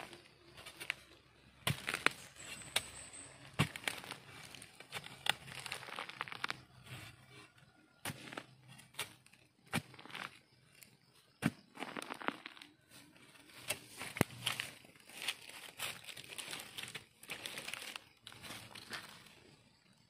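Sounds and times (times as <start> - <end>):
stick scraping soil: 0.0 - 19.6
dry leaves crackling: 1.7 - 6.6, 13.8 - 19.2.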